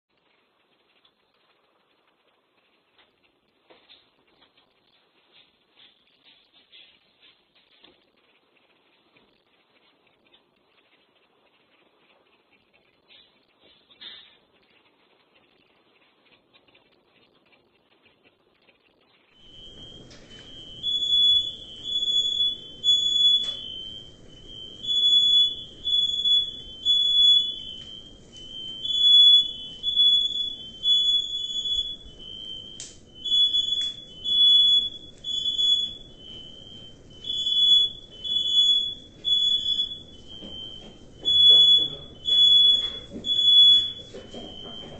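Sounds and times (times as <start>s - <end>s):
smoke alarm beeping: 19.4s - 44.9s.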